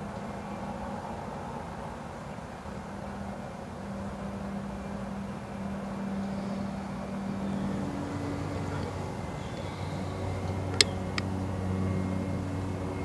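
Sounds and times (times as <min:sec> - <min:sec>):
motor humming: 0:04.8 - 0:13.0.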